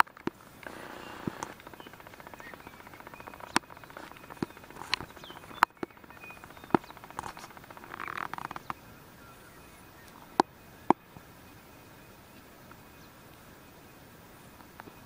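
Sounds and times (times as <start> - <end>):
fast-pulsing buzz: 0.0 - 8.8
sharp clicks: 0.0 - 8.8.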